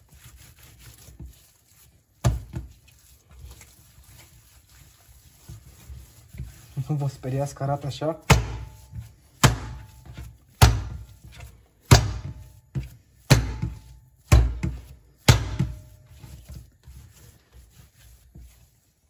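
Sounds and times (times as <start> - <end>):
dough handling: 0.0 - 19.0
dough slapped on table: 8.3 - 8.7, 9.4 - 9.8, 10.6 - 11.0, 11.9 - 12.4, 13.3 - 15.8.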